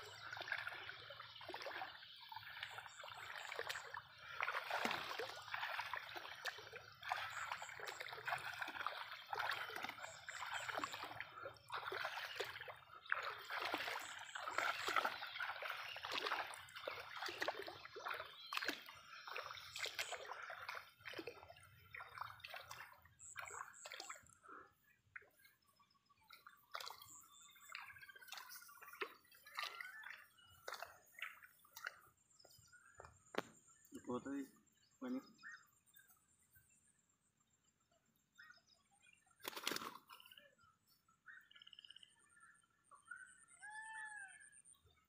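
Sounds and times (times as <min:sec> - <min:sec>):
water dripping: 0:00.0 - 0:24.4, 0:26.3 - 0:33.6
water sloshing around wading legs: 0:00.0 - 0:36.5, 0:39.3 - 0:42.2.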